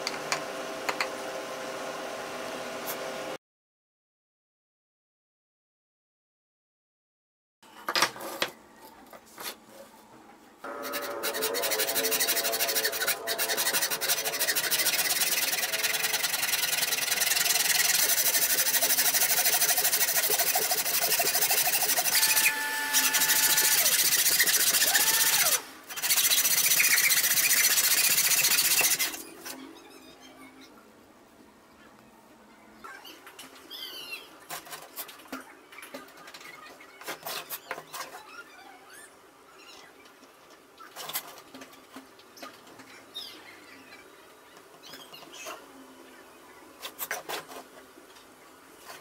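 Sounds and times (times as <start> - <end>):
router cutting plywood: 10.7 - 29.2.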